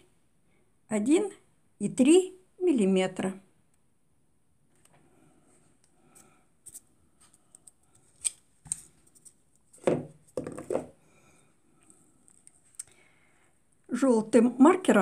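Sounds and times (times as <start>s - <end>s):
rubbing and rustling crochet: 5.6s - 11.0s.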